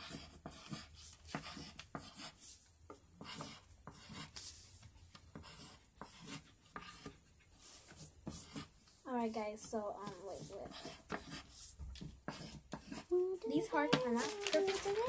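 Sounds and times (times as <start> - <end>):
pencil scratching on paper: 0.0 - 8.8, 9.4 - 14.3.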